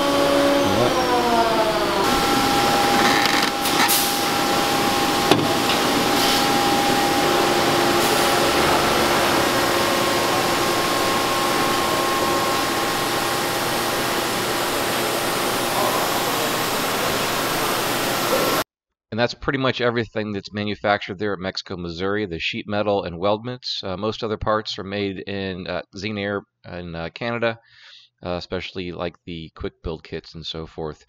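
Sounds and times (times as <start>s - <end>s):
machinery hiss: 2.0s - 18.6s.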